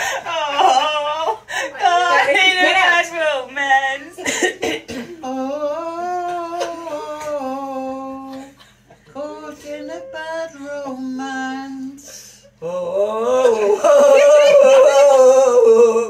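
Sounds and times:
woman humming a melody: 5.2 - 8.5, 9.1 - 16.0.

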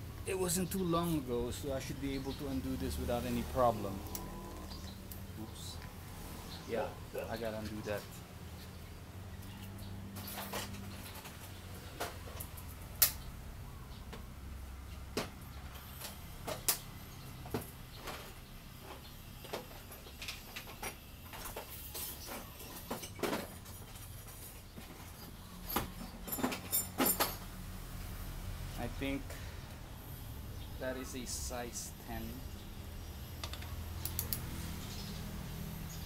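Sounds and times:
tools and fasteners clinking: 19.4 - 27.5, 33.4 - 34.4.

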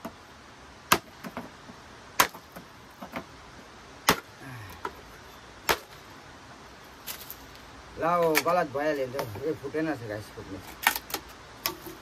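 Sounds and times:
blade chopping bamboo: 0.9 - 1.5, 2.2 - 3.2, 4.0 - 4.3, 5.6 - 6.0.

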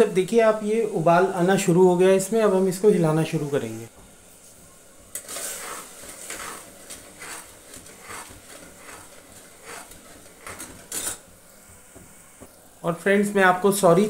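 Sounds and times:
metal spoon scraping a pot: 5.2 - 11.2.

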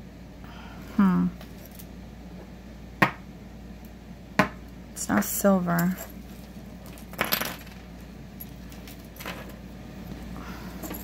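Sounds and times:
metal jewelry clinking: 5.6 - 9.6, 10.7 - 11.0.

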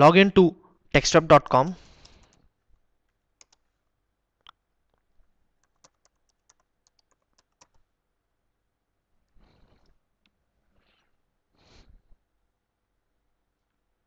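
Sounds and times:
faint keyboard keystrokes: 3.4 - 3.7, 4.9 - 7.8.

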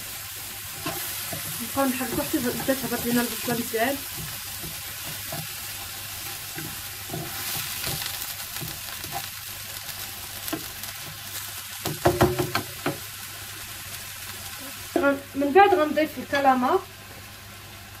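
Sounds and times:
onions sizzling in frying pan: 0.0 - 18.0
wooden spatula stirring and scraping: 0.7 - 9.3.

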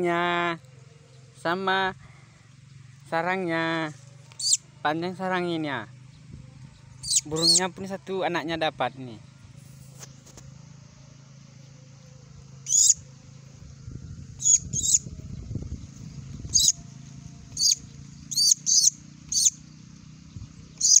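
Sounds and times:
bird nestling cheeping: 4.4 - 4.6, 7.0 - 7.6, 12.6 - 13.0, 14.4 - 15.0, 15.8 - 16.8, 17.5 - 19.6, 20.7 - 21.0.

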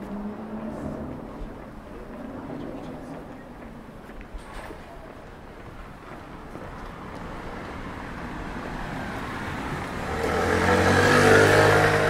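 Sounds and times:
vehicle passing by: 6.8 - 12.0.

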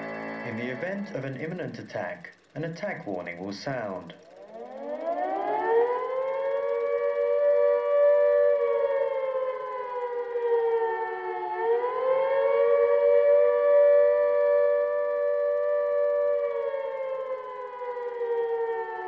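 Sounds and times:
air-raid siren wailing: 0.0 - 1.4, 4.2 - 19.0.

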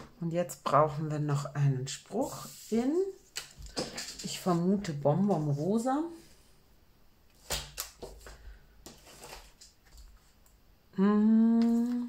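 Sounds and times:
paper rustling: 7.4 - 10.4
person humming: 10.9 - 12.0.

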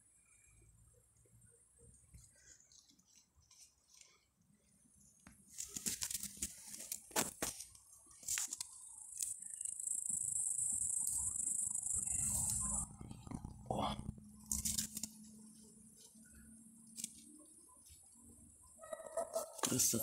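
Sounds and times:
high-pitched insect trill: 8.7 - 13.0.

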